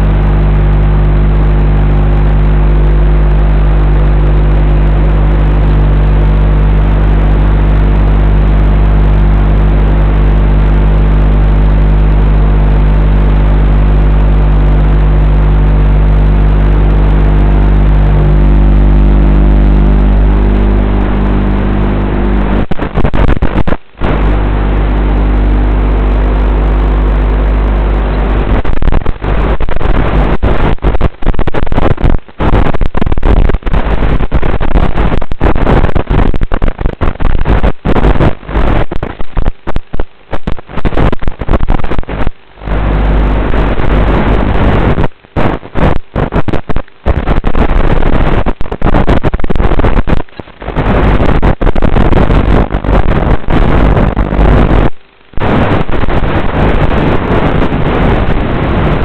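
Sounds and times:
low hum: 0:00.0 - 0:59.0
rushing wind and water: 0:20.3 - 0:59.0.

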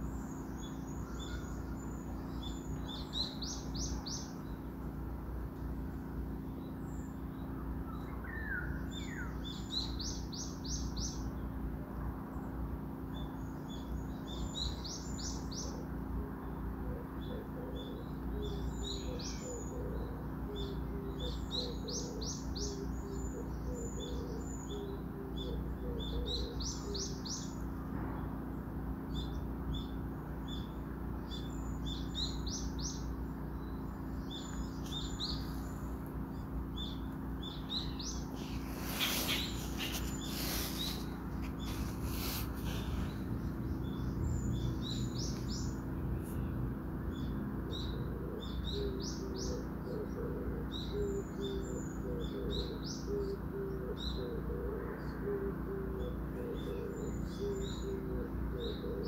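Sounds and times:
songbird chirping: 0:00.0 - 0:05.0, 0:05.6 - 0:11.6, 0:29.0 - 0:59.0
low hum: 0:27.5 - 0:47.8.

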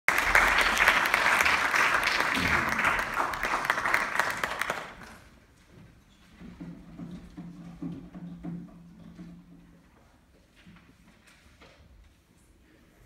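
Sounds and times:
audience applause: 0:00.1 - 0:05.2.

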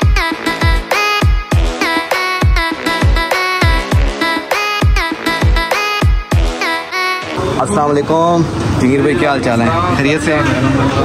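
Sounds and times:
electronic music with bass: 0:00.0 - 0:07.6.

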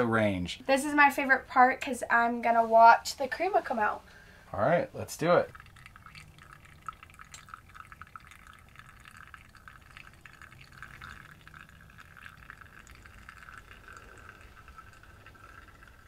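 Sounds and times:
espresso pouring into mug: 0:05.2 - 0:16.0
drip ticks: 0:05.5 - 0:16.0.

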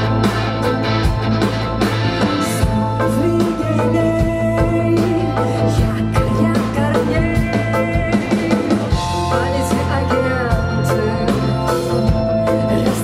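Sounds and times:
bass guitar: 0:00.0 - 0:13.0
drum kit: 0:00.0 - 0:13.0
electric guitar: 0:00.0 - 0:13.0
woman singing lead vocal: 0:02.4 - 0:13.0.

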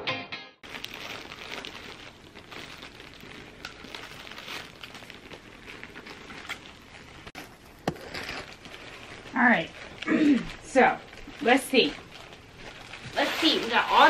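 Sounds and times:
plastic bags crinkling: 0:00.6 - 0:14.0.

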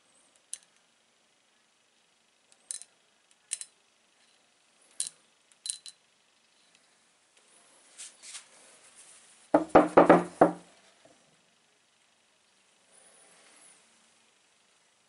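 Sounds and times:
magnet clicking against stones: 0:02.5 - 0:06.0.

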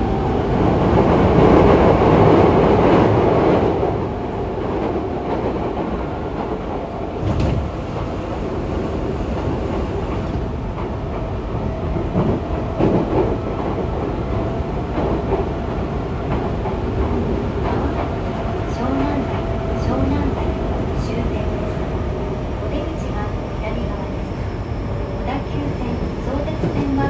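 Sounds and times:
train wheels rumbling on rail: 0:00.0 - 0:27.0
train car bumps: 0:07.2 - 0:07.8.

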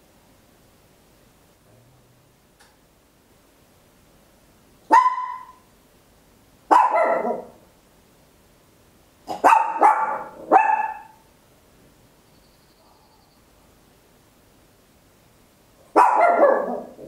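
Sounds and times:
small dog barking high-pitched: 0:04.9 - 0:05.7, 0:06.7 - 0:07.6, 0:09.3 - 0:11.3, 0:15.9 - 0:17.0.

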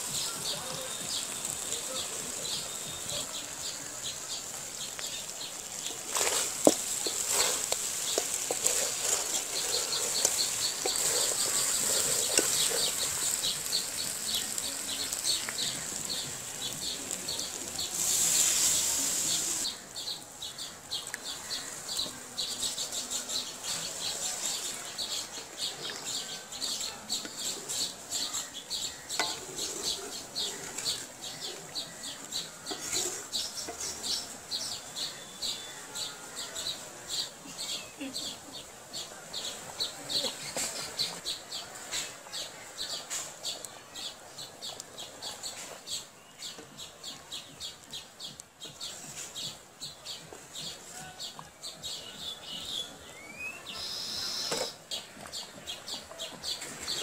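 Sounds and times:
meat sizzling in oil: 0:00.0 - 0:19.9, 0:21.0 - 0:35.6
curry simmering: 0:00.0 - 0:57.0
wooden spatula stirring: 0:04.4 - 0:19.6, 0:23.8 - 0:36.8.

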